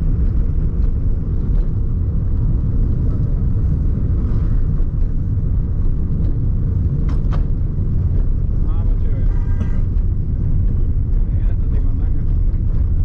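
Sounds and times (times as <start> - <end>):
car driving on wet street: 0.0 - 13.0.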